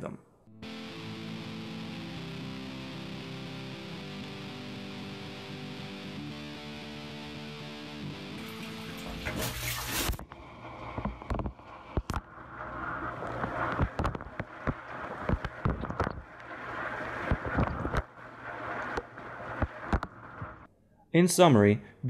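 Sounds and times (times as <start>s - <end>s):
water splashing inside dishwasher: 8.4s - 10.2s.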